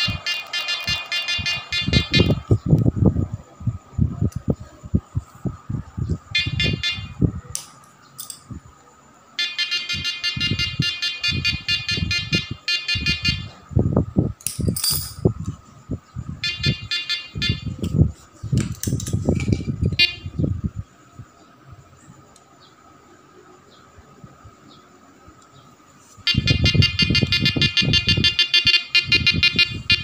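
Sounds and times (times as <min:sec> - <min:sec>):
harsh high buzzing tone: 0:00.0 - 0:04.5, 0:05.7 - 0:07.5, 0:08.2 - 0:15.3, 0:15.9 - 0:18.3, 0:19.2 - 0:21.3, 0:24.7 - 0:30.0.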